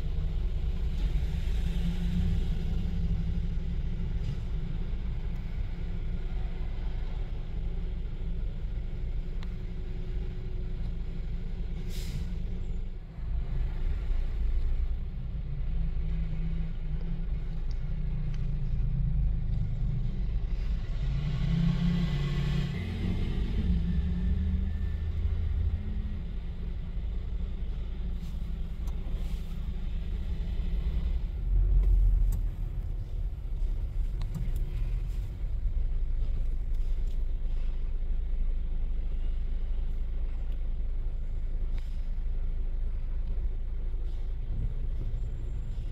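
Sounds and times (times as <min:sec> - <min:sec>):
truck and car engines rumbling: 0:00.0 - 0:45.9.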